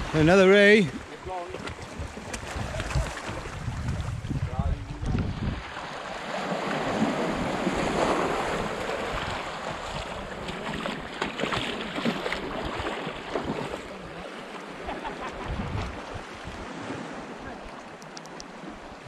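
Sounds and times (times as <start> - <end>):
sea waves washing on shore: 0.0 - 19.0
wind buffeting microphone: 0.9 - 5.9, 15.2 - 17.6.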